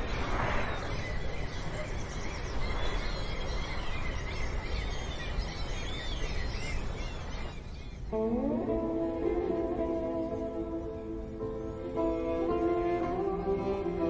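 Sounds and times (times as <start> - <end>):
small birds chirping: 0.0 - 14.0
string music: 8.1 - 14.0.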